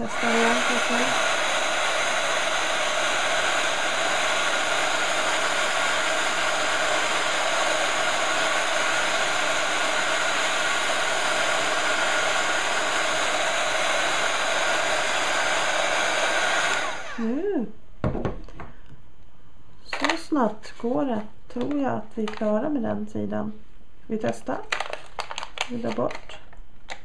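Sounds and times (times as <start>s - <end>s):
heat gun blowing hot air: 0.0s - 17.3s.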